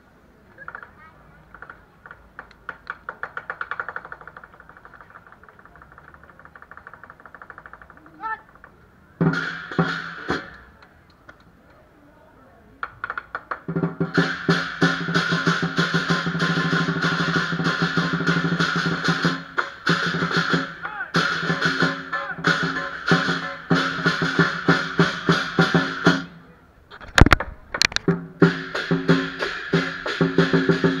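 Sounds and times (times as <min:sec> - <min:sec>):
drum beat: 0:09.2 - 0:10.6, 0:13.1 - 0:26.3, 0:28.0 - 0:31.0.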